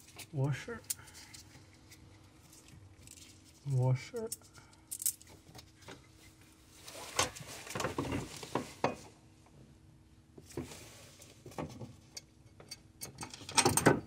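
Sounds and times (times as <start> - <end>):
metal bolt and washers clinking: 12.1 - 14.0.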